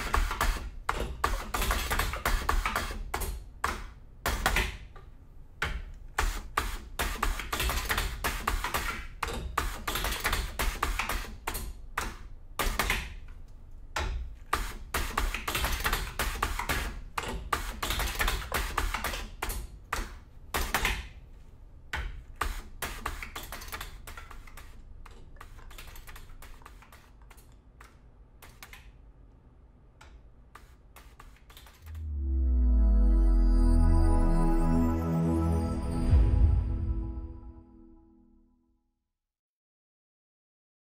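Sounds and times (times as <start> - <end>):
music: 31.9 - 38.5.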